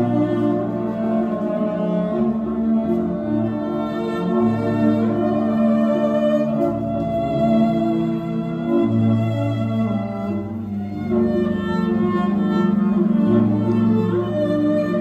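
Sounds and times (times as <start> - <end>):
cello melody: 0.0 - 15.0.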